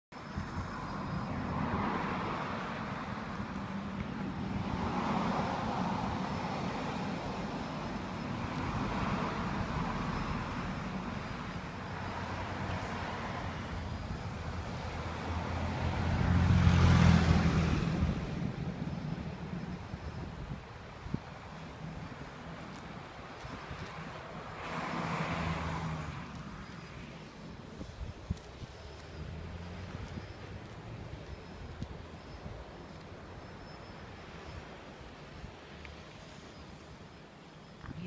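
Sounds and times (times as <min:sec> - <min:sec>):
road traffic passing: 0:00.1 - 0:38.0
loud vehicle passing close: 0:00.6 - 0:19.9, 0:24.1 - 0:27.3.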